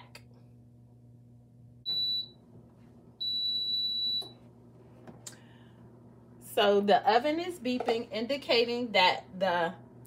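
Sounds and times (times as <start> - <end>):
oven beeping: 1.8 - 2.5, 3.1 - 4.5.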